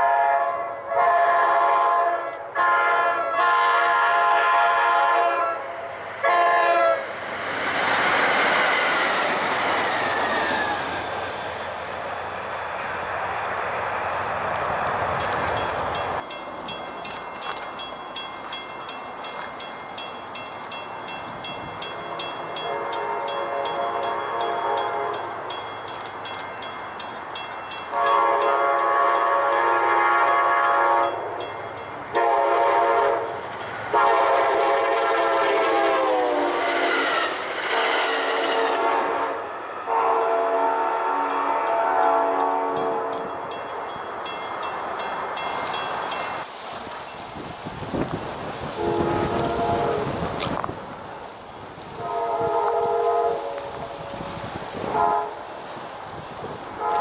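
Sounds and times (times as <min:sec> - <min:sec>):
distant train air horn blasts: 0:00.0 - 0:07.1, 0:22.0 - 0:25.4, 0:27.9 - 0:31.3, 0:32.1 - 0:43.4, 0:48.8 - 0:50.3, 0:51.9 - 0:55.6, 0:56.8 - 0:57.0.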